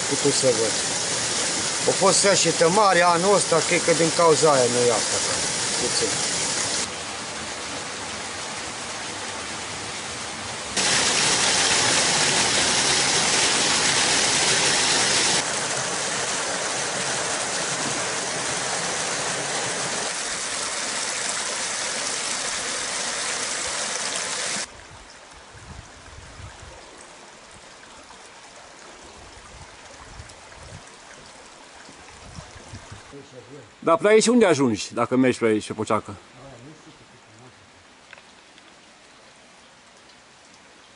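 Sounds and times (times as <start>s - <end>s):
waterfall splashing and rushing: 0.0s - 24.7s.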